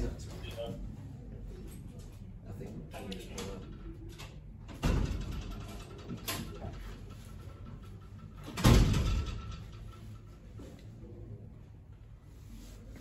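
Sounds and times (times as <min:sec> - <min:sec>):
low room noise: 0:00.0 - 0:13.0
door shutting with thud: 0:08.5 - 0:09.6.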